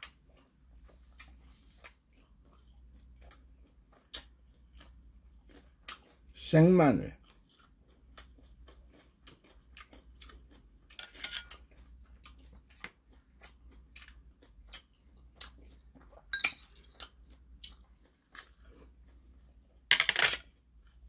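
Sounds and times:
chopsticks clinking on porcelain bowl: 0:11.0 - 0:11.6.

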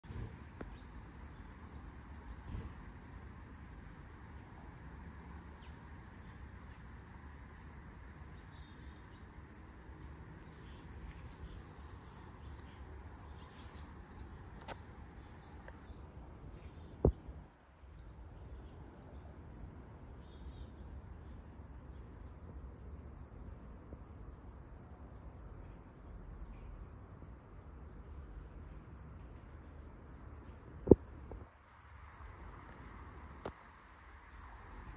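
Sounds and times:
insects chorus: 0:00.0 - 0:34.9.

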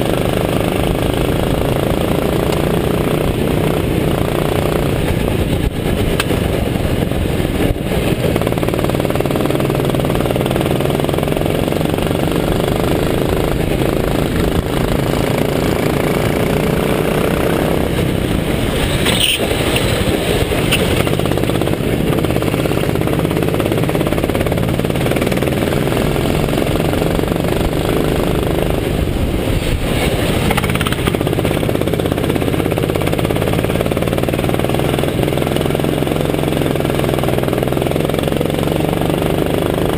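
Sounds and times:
go-kart engine running hard: 0:00.0 - 0:39.9.

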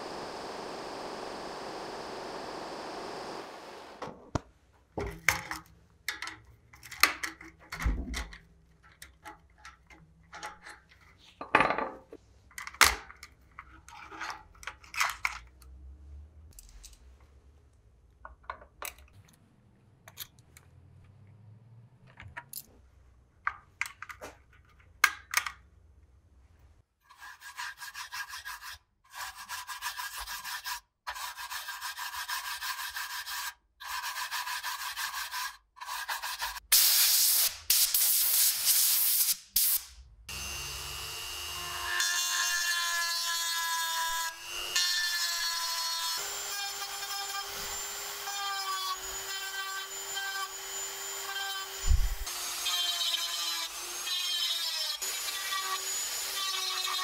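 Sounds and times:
metal clicks and taps: 0:18.2 - 0:19.4.

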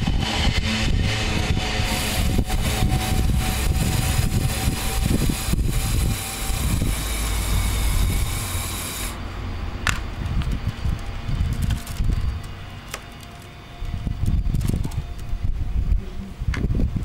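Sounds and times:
toy crane motors whirring: 0:00.0 - 0:09.2, 0:10.1 - 0:15.4
low rumble: 0:00.0 - 0:12.8.

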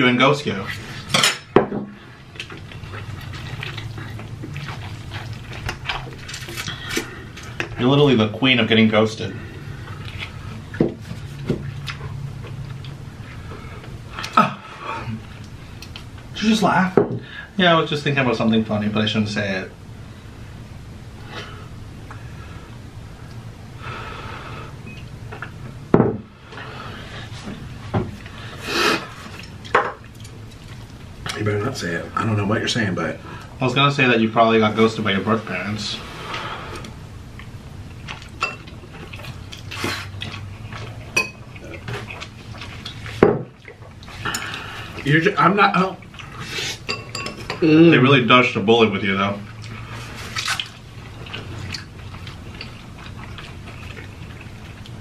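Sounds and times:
noodles slurped and chewed: 0:02.3 - 0:07.6, 0:49.6 - 0:55.0
chewing: 0:02.3 - 0:07.8, 0:09.7 - 0:13.5, 0:28.2 - 0:31.4, 0:36.3 - 0:45.1, 0:49.5 - 0:55.0.

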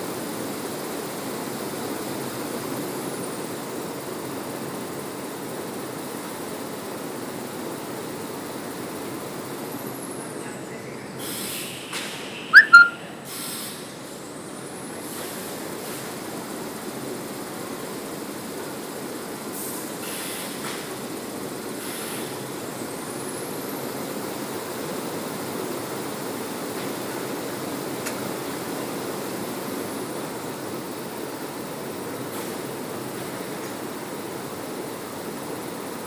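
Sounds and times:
short high-pitched sound: 0:12.6 - 0:13.0.

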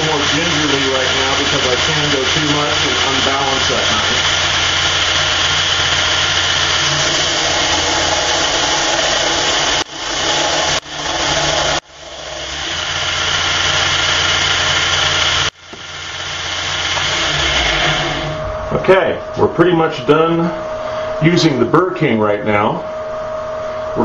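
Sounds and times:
belt grinder running: 0:00.0 - 0:18.4.

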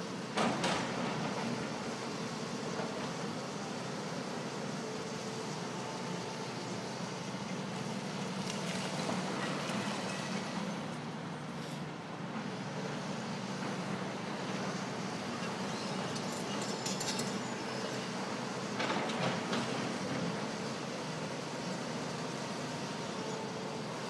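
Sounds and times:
excavator diesel engines running: 0:00.0 - 0:24.0.

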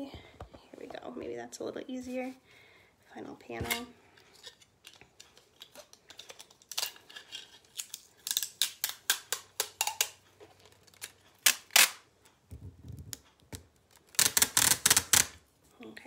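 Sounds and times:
tape pulled off roll: 0:14.1 - 0:15.4.

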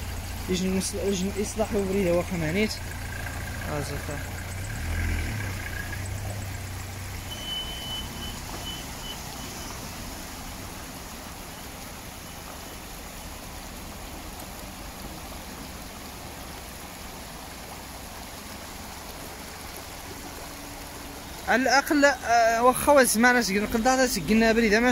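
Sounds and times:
floodwater rushing over gravel: 0:00.0 - 0:24.9
vehicle engine: 0:00.0 - 0:24.9
high beeps: 0:07.3 - 0:09.7.

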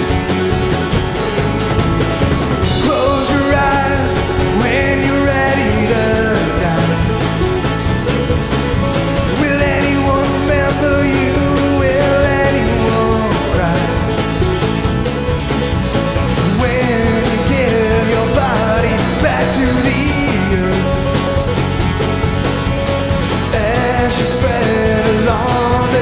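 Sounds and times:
drums: 0:00.0 - 0:26.0
electric bass: 0:00.0 - 0:26.0
mandolin: 0:00.0 - 0:26.0
strummed acoustic guitar: 0:00.0 - 0:26.0
man singing: 0:02.6 - 0:08.2, 0:08.9 - 0:14.8, 0:16.3 - 0:21.8, 0:23.4 - 0:26.0.

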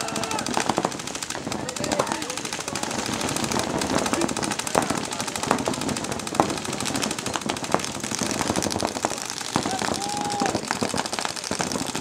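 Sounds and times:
paintball markers firing rapidly: 0:00.0 - 0:12.0.

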